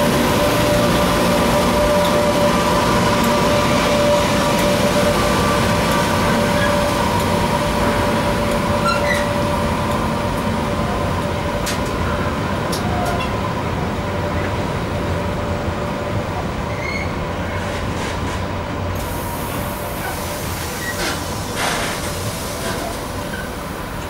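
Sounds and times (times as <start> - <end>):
electric locomotive motor whine: 0.0 - 17.4, 18.7 - 24.0
wheels rumbling on rail: 0.0 - 24.0.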